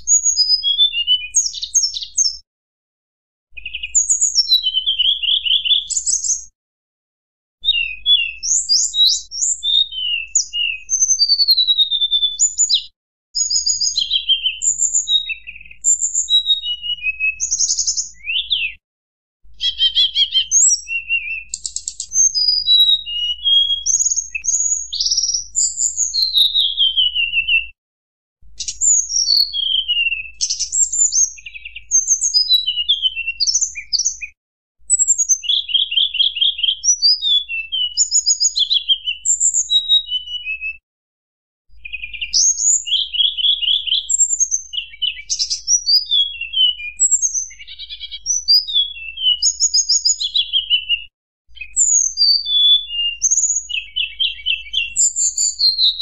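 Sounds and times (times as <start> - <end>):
bird singing high whistled notes: 0.0 - 2.4, 3.6 - 6.5, 7.6 - 18.8, 19.6 - 27.8, 28.6 - 40.8, 41.7 - 56.0.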